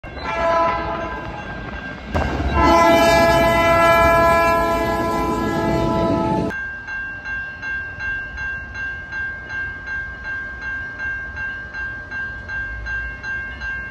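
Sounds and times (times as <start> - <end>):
low rumble of passing train: 0.0 - 13.9
train horn: 0.2 - 1.2, 2.4 - 6.5.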